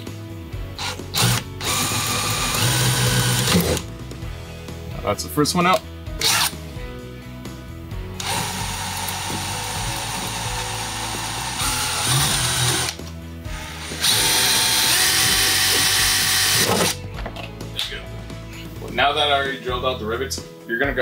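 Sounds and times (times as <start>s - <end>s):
cordless drill whining: 0.8s - 3.9s, 6.2s - 6.6s, 8.2s - 17.0s.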